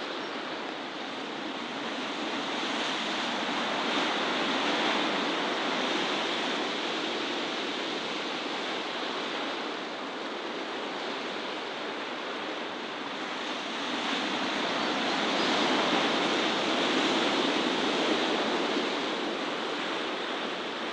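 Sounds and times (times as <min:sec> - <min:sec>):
sea surf washing: 0:00.0 - 0:20.9.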